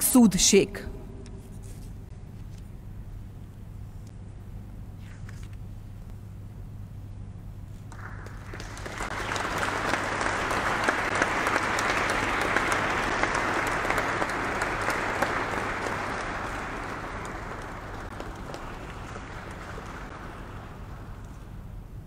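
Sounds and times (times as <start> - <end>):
audience applauding: 7.9 - 22.0.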